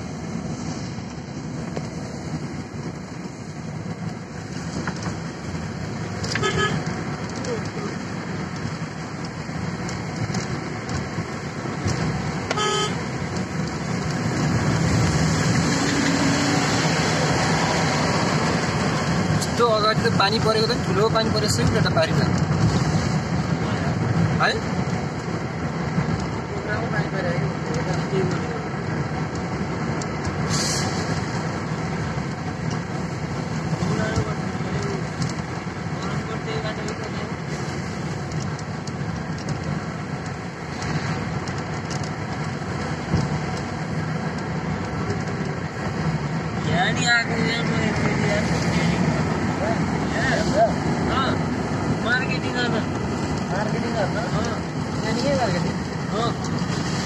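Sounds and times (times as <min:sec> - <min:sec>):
road and engine noise: 0:00.0 - 0:57.0
car horn toot: 0:06.3 - 0:06.9, 0:12.5 - 0:13.0.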